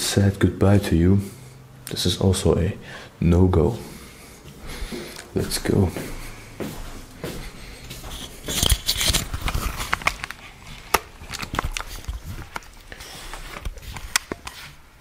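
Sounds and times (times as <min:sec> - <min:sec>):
footsteps on wooden floor: 0:04.4 - 0:08.9.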